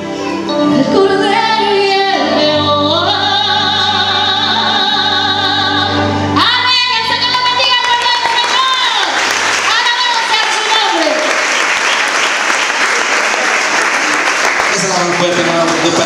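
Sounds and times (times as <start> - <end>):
woman singing with vibrato: 0.5 - 11.2.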